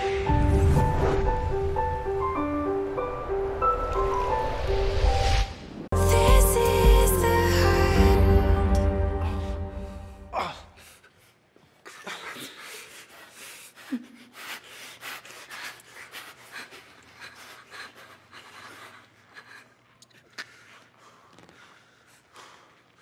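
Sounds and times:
music: 0.0 - 10.4
stifled laughter panting: 11.9 - 19.8.

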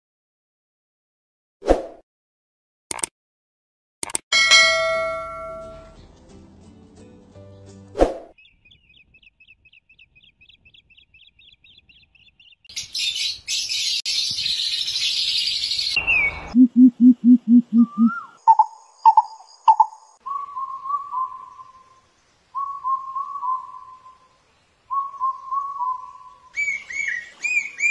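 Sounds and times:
low hoots: 16.6 - 18.6
short whistled phrases: 17.8 - 18.4.

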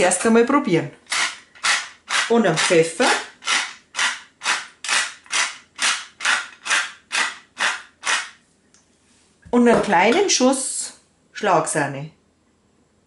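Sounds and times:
pepper mill grinding: 1.0 - 8.4.

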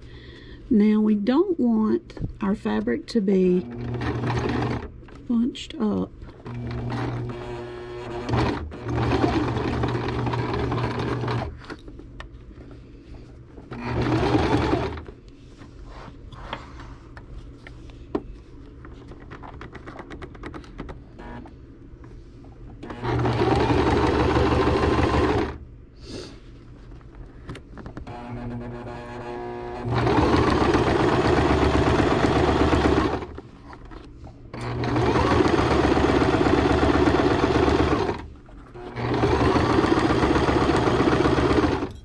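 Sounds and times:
sewing machine stitching: 3.6 - 4.9, 6.4 - 11.6, 13.7 - 15.1, 22.8 - 25.6, 28.0 - 33.4, 34.6 - 41.9.

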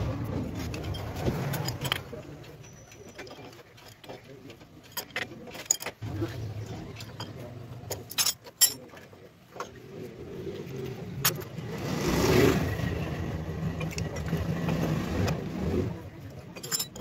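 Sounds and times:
metal tools clinking: 0.5 - 6.0, 6.9 - 9.8, 11.2 - 11.6, 16.2 - 17.0
vehicle engine passing by: 10.2 - 16.2.

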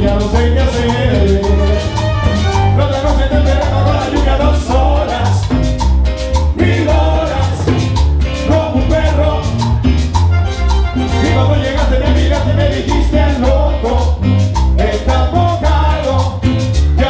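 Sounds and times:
bass line: 0.0 - 17.0
congas and drums: 0.0 - 17.0
salsa band playing: 0.0 - 17.0
lead singer singing: 2.6 - 5.6, 11.1 - 14.2.

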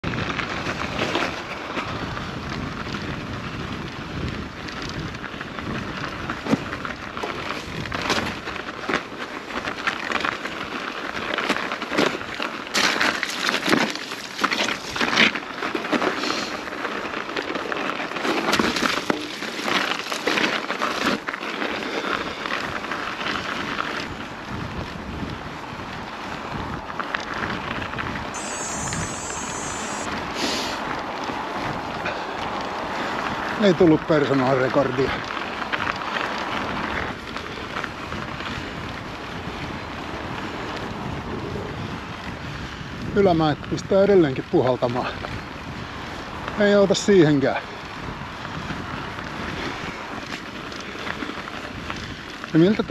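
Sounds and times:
wind buffeting microphone: 0.0 - 8.9, 22.2 - 34.3, 34.9 - 52.9
bike rattling and knocking: 0.0 - 28.4, 30.9 - 52.9
bike tyres rumbling on trail: 0.0 - 52.9
thin high chirping tone: 28.4 - 30.1
short hiss: 28.4 - 30.8.

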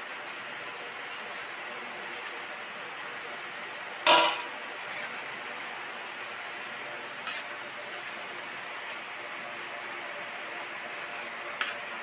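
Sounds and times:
knife clinking on metal plate: 4.1 - 4.5.

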